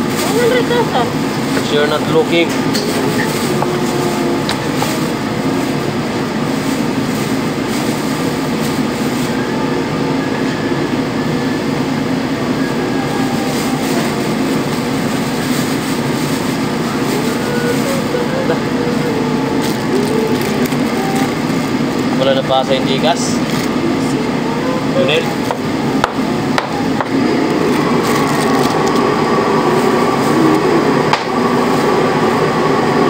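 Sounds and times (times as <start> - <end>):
loud rumbling noise: 0.0 - 33.0.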